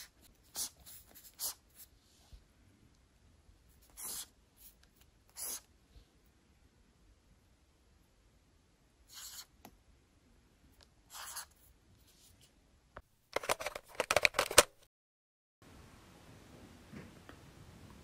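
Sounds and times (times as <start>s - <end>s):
highlighter stroking paper: 0.0s - 2.2s, 3.8s - 5.7s, 9.1s - 9.5s, 11.1s - 12.5s.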